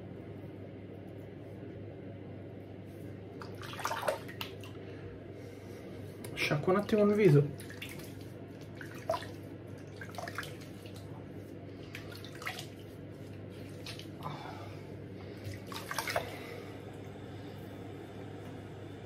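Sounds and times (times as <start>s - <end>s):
water splashing at sink: 3.4s - 4.8s, 6.4s - 14.5s, 15.2s - 17.0s.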